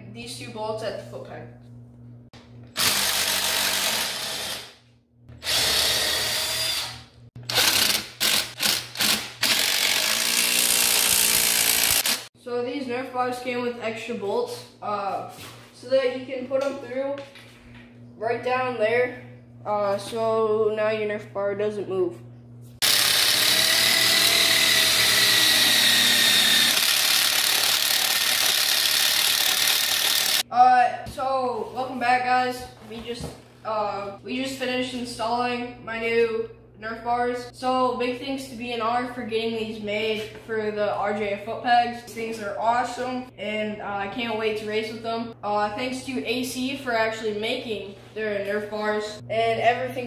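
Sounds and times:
power driver whining: 2.4 - 12.3, 22.8 - 30.4
cordless drill spinning: 2.7 - 4.8, 5.4 - 12.3, 22.8 - 30.4.

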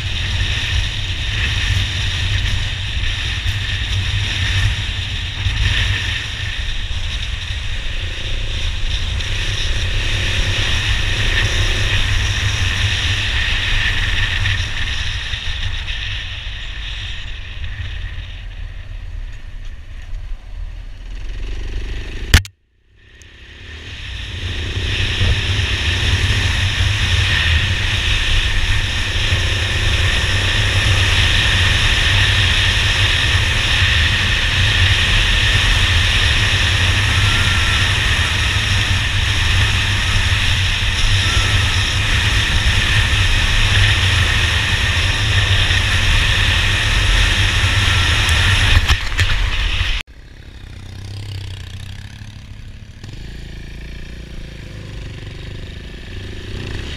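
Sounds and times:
motorcycle engine and wind: 0.0 - 56.9
sharp click: 22.3 - 22.6.

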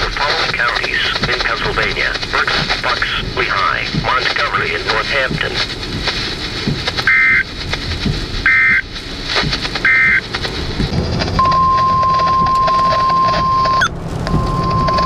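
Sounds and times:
car running noise: 0.0 - 15.0
shrill digital data tones: 7.0 - 7.5, 8.4 - 8.9, 9.8 - 10.3, 11.4 - 15.0
steady alarm tone: 7.0 - 7.5, 8.4 - 8.9, 9.8 - 10.2, 11.4 - 15.0.

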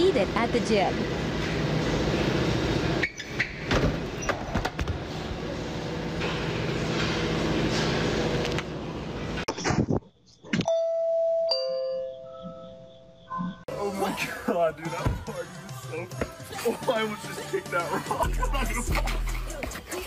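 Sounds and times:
doorbell ding-dong chime: 10.7 - 12.3.

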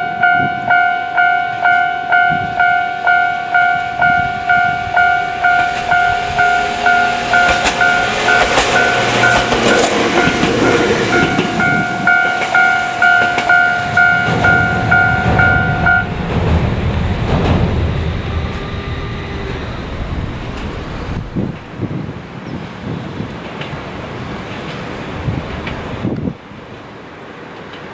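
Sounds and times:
level-crossing alarm ringing: 0.0 - 16.2
low rumble: 3.4 - 22.5
train wheels clacking over rail joints: 4.5 - 21.7.

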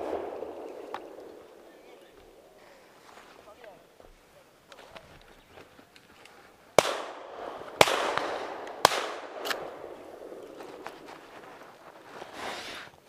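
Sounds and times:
shotgun shots echoing: 0.0 - 2.6, 6.8 - 11.2.

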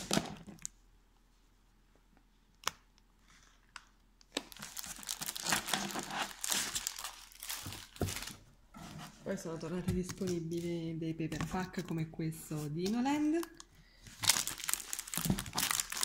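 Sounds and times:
plastic wrapping crinkling: 4.3 - 8.5, 12.9 - 16.0.

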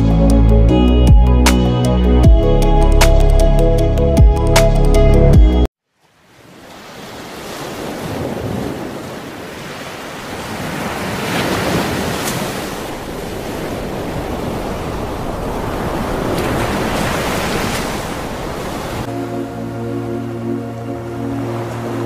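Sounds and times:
ocean waves breaking: 6.0 - 22.0.

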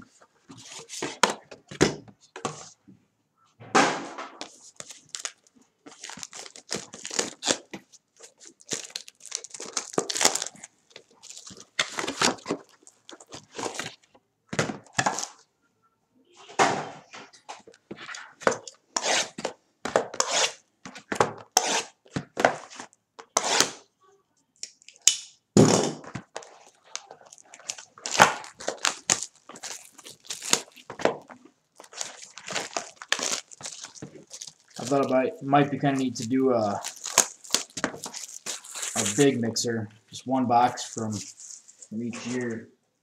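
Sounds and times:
packaging ripping and rustling: 4.4 - 14.1, 26.2 - 39.4, 40.6 - 42.6.

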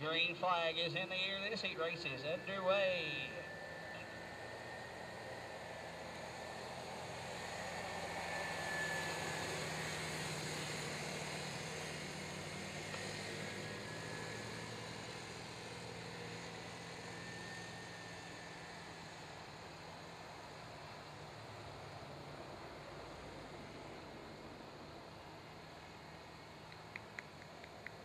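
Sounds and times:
atv engines droning: 0.0 - 28.0.

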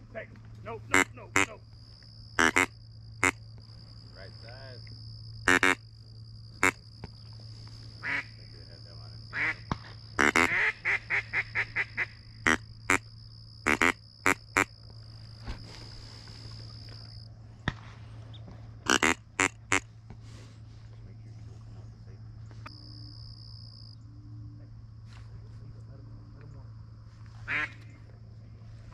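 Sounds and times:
ducks quacking: 0.8 - 1.6, 2.4 - 3.4, 5.5 - 5.8, 6.6 - 6.8, 7.9 - 8.5, 9.3 - 13.0, 13.7 - 14.7, 18.8 - 19.9, 27.4 - 27.9.

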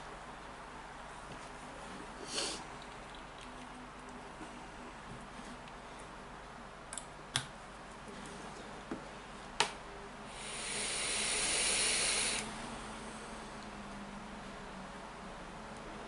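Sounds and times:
hiss of drawn vapour: 2.2 - 2.6, 10.3 - 13.4.

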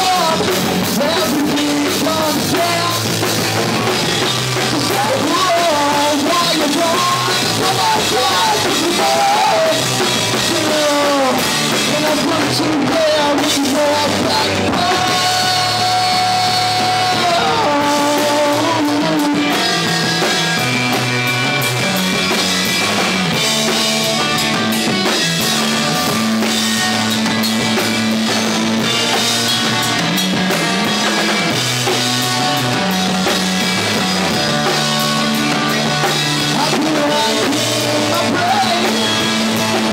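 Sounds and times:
man singing: 0.0 - 20.5, 34.0 - 39.9
drum kit: 0.0 - 39.9
electric guitars: 0.0 - 39.9.

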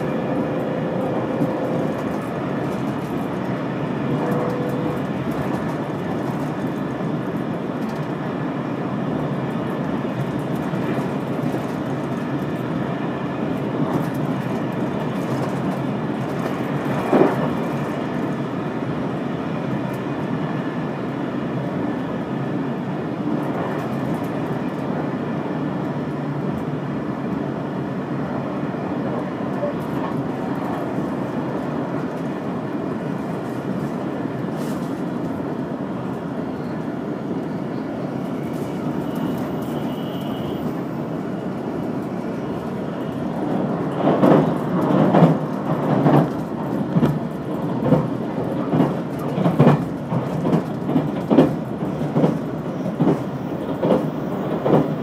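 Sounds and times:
train running rumble: 0.0 - 55.0
wheels clacking over rail joints: 43.1 - 55.0.

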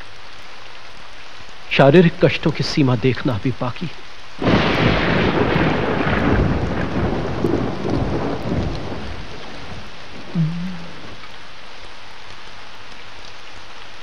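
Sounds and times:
steady rain: 0.0 - 14.0
rolling thunderclap: 4.4 - 11.2.

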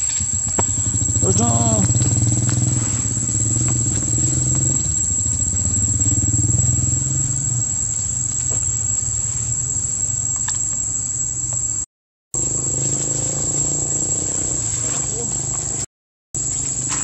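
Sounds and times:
small engine humming: 0.0 - 11.6, 12.4 - 17.0
high-pitched whine: 0.0 - 11.8, 12.4 - 17.0.

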